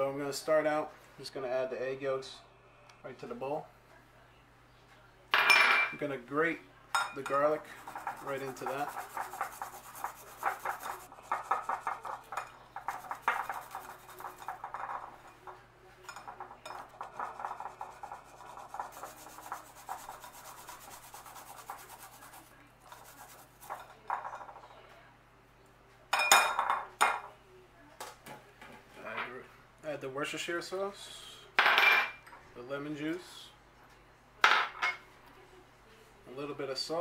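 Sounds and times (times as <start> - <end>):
garlic rasping on grater: 7.7 - 11.9.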